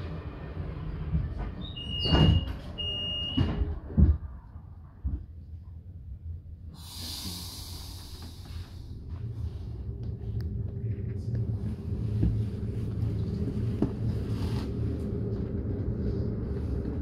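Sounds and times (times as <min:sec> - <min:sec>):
train rumble: 0:00.0 - 0:17.0
sliding doors thudding shut: 0:01.8 - 0:04.3
air hissing: 0:06.8 - 0:09.0.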